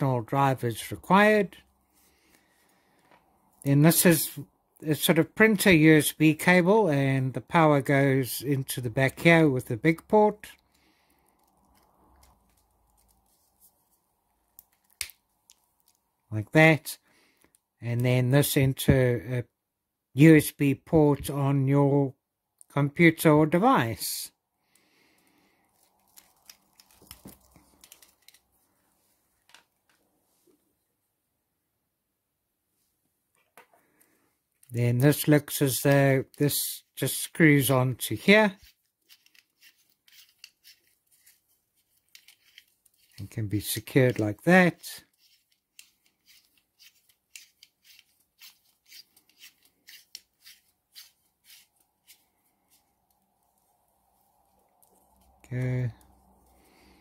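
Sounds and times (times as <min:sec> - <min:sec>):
cable clicks and scrapes: 0:11.3 - 0:13.4, 0:25.8 - 0:28.5, 0:38.3 - 0:53.6.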